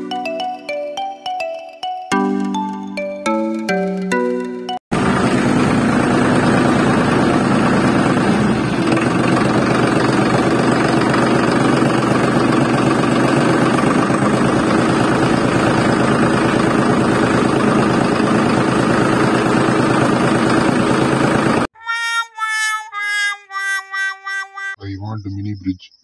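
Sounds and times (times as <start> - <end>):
mini tractor engine running: 4.9 - 21.7.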